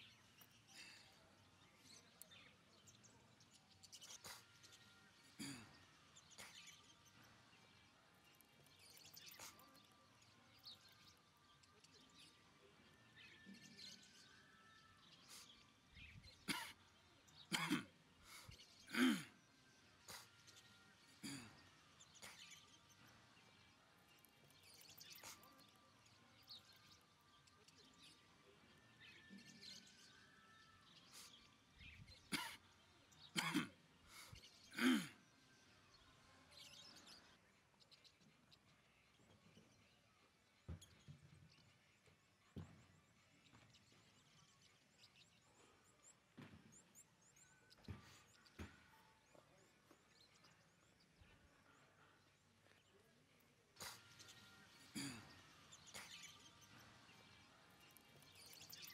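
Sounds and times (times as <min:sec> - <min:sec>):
faint bird chirps: 0:00.0 - 0:58.9
person coughing: 0:05.4 - 0:05.8, 0:16.5 - 0:16.8, 0:17.5 - 0:17.9, 0:18.9 - 0:19.4, 0:21.2 - 0:21.6, 0:32.3 - 0:32.6, 0:33.4 - 0:33.8, 0:34.7 - 0:35.2, 0:53.8 - 0:54.0, 0:54.9 - 0:55.4.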